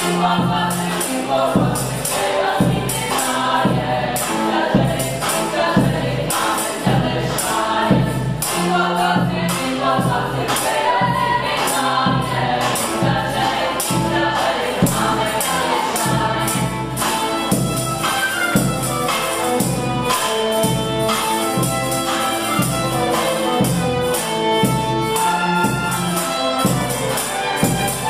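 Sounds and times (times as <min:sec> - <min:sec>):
choir singing: 0:00.0 - 0:28.0
percussion beat: 0:00.0 - 0:28.0.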